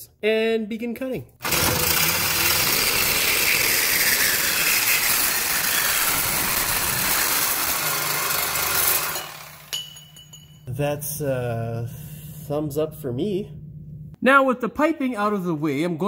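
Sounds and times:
reciprocating saw cutting metal pipe: 1.4 - 9.9.

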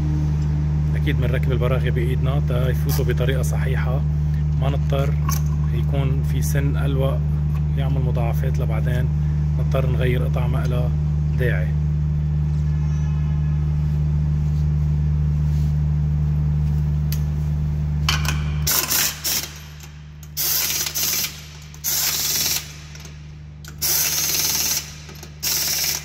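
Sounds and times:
steady low hum: 0.0 - 26.0
pneumatic impact wrench bursts: 18.1 - 26.0.

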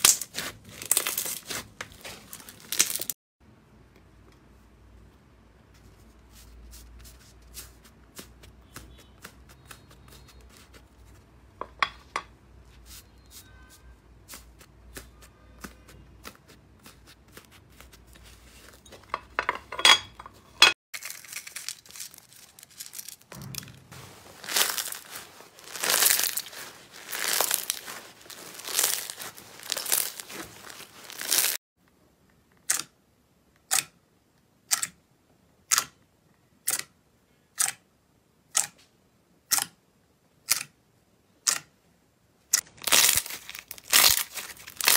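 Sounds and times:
slime squishing: 0.0 - 3.1, 24.0 - 31.6, 42.6 - 44.9.

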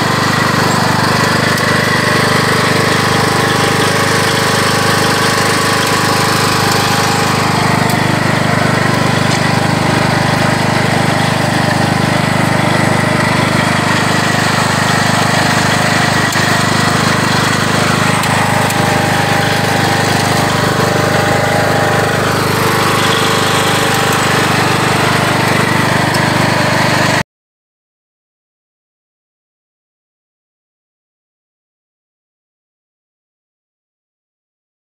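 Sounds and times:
lawn tractor engine running: 0.0 - 27.2.

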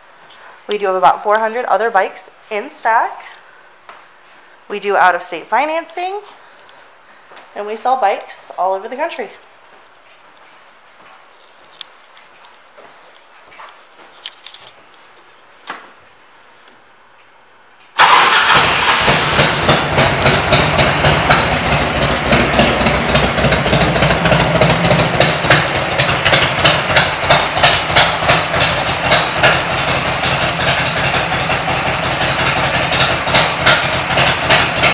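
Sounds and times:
motorcycle engine starting and idling: 17.9 - 34.9.

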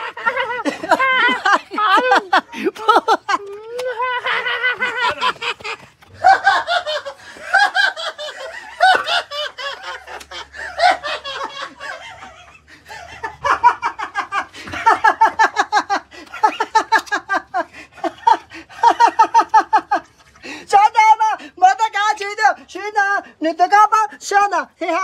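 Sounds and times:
person laughing high-pitched: 0.0 - 20.1.

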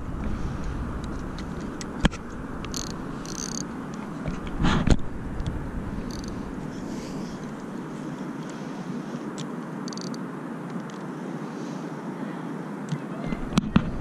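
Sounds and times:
microphone handling noise: 0.0 - 7.7
distant city traffic: 0.0 - 14.0.

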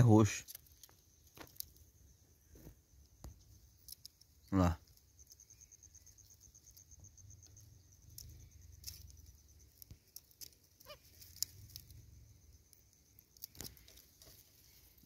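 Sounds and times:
faint rustles: 7.6 - 15.0
scattered clicks: 12.7 - 14.4.

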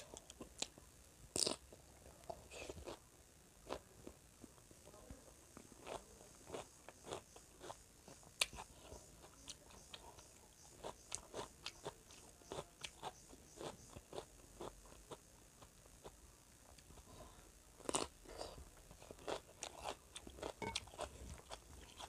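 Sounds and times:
close-up chewing crunches: 17.8 - 22.0.

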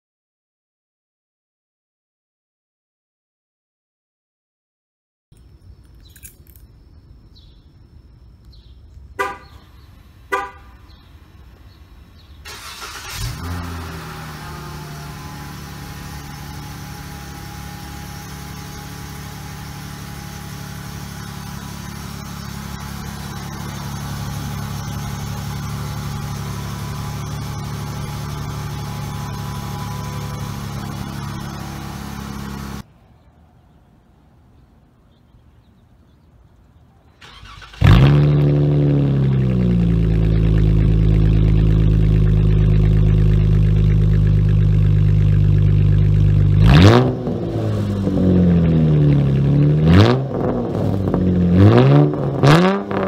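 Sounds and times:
car engine starting and idling: 8.6 - 32.9, 37.2 - 53.0
car horn chirps: 9.2 - 11.0.

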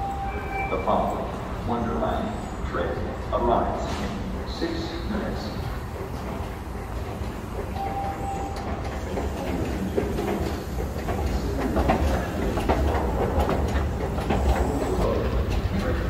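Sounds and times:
subway train rumbling and clattering: 0.0 - 16.0.

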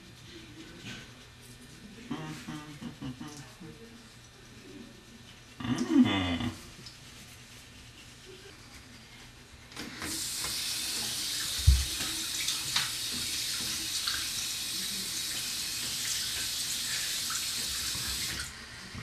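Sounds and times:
tap running into a sink: 9.8 - 14.4.

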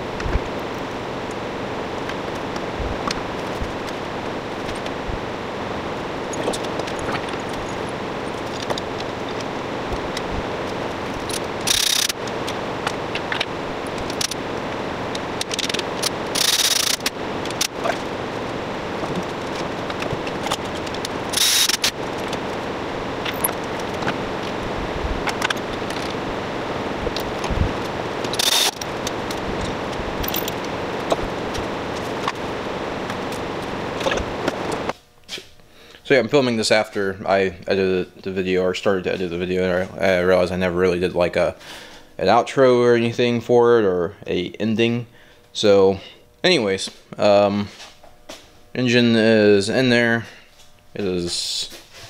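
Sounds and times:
shop hum: 0.0 - 52.0
short hissing bursts: 21.3 - 21.9.

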